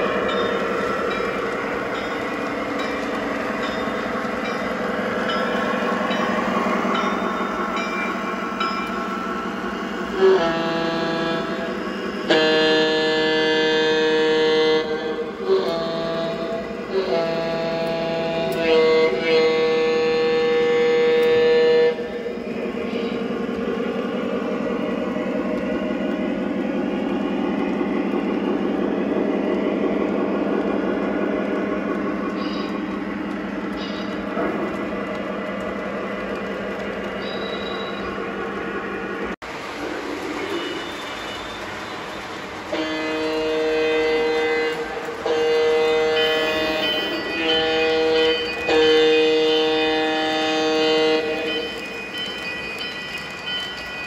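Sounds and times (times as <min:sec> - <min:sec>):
model train rolling rumble: 0:00.0 - 0:54.0
wheels clicking on rails: 0:00.0 - 0:54.0
model train air horn: 0:10.1 - 0:11.7, 0:12.3 - 0:22.1, 0:42.7 - 0:51.7.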